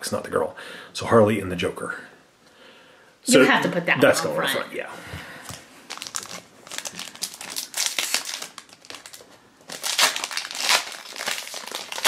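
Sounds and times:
foil wrapper crinkling: 5.8s - 12.0s.

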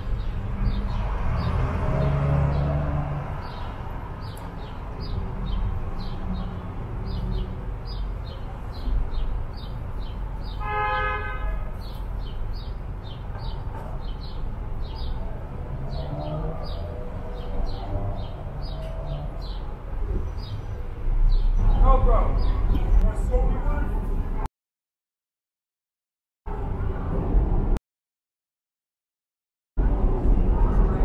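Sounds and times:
street traffic rumbling: 0.0s - 24.5s, 26.5s - 27.8s, 29.8s - 31.0s
vehicle horn: 10.6s - 11.8s
bird chirping: 15.9s - 23.4s.

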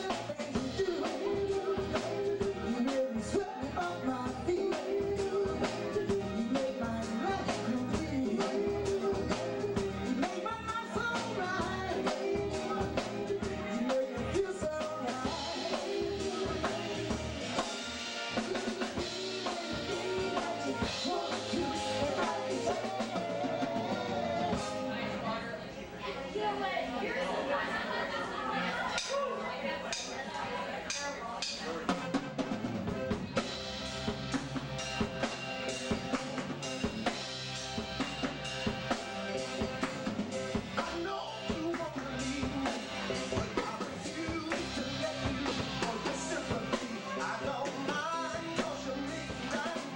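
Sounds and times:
live band playing: 0.0s - 25.6s, 28.8s - 49.9s.

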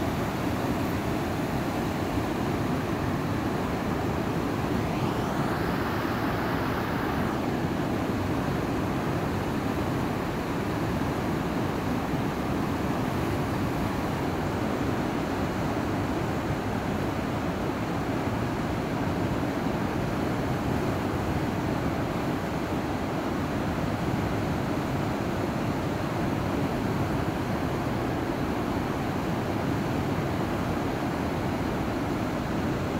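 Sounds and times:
river rushing past rocks: 0.0s - 22.8s.

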